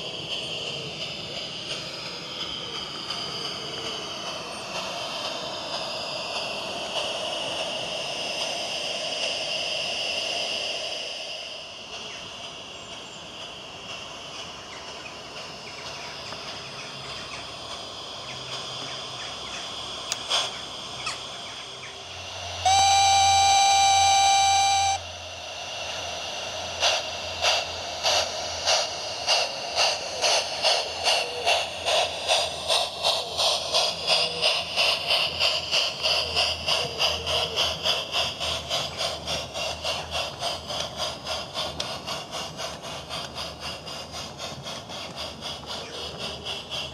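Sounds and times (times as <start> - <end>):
steam exhaust chuffs: 0.0 - 46.9
steam whistle blast: 22.5 - 25.2.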